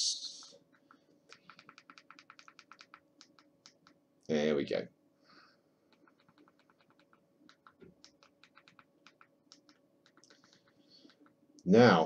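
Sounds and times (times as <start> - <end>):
remote control buttons clicking: 0.8 - 4.0, 5.9 - 11.4.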